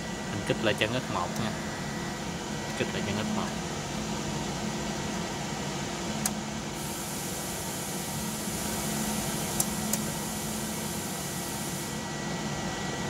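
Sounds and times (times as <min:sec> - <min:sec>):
electrical hum and hiss: 0:00.0 - 0:13.0.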